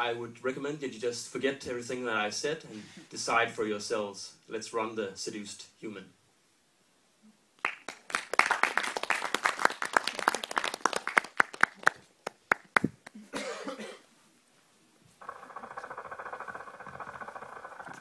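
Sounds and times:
audience applauding: 7.6 - 13.2.

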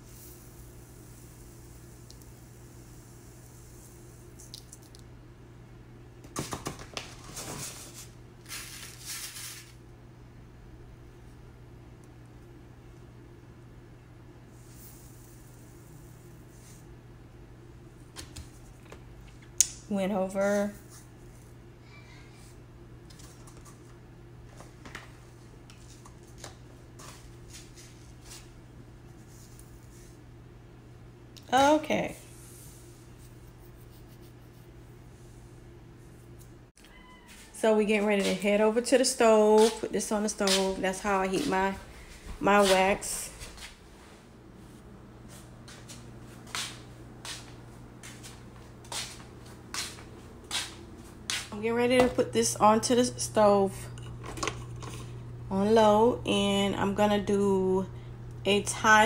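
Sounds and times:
wax granules pouring into metal pitcher: 0.0 - 4.8, 7.9 - 9.8, 14.5 - 16.8
steady low hum: 0.0 - 36.8, 37.4 - 59.0.

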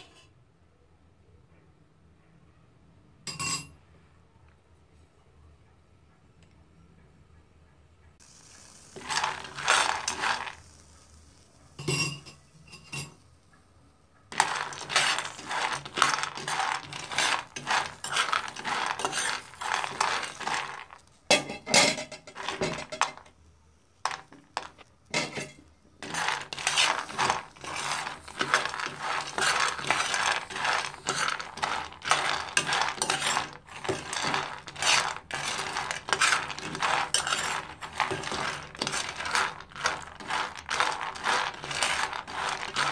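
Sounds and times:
peanuts rattling in metal pan: 8.2 - 13.2, 14.3 - 23.3, 24.0 - 42.9.

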